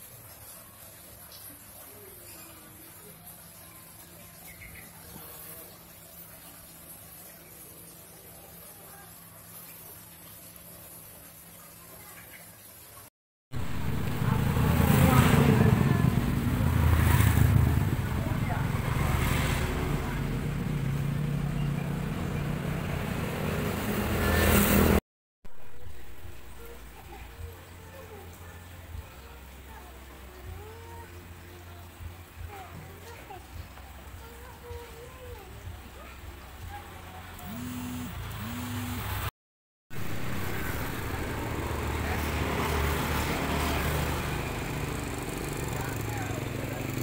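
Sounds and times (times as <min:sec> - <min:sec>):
motor humming: 0:37.4 - 0:39.3.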